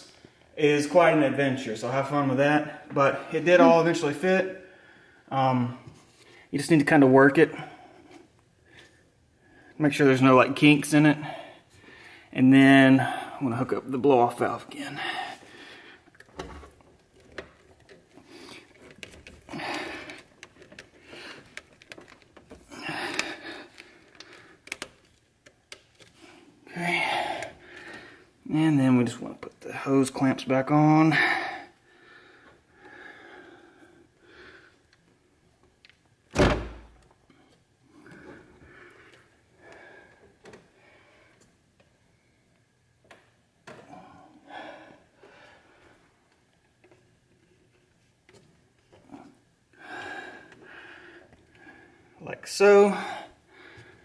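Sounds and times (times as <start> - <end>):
heavy breaths: 11.0 - 13.5, 14.6 - 16.5, 18.0 - 25.0, 26.0 - 28.5, 31.0 - 35.4, 37.3 - 41.6, 43.7 - 46.4, 48.9 - 54.0
hose clicking and rubbing on fitting: 16.0 - 26.3.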